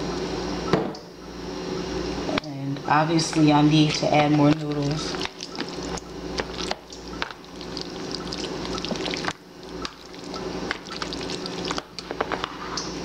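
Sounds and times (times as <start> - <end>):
food squelching while stirred: 3.8 - 12.9.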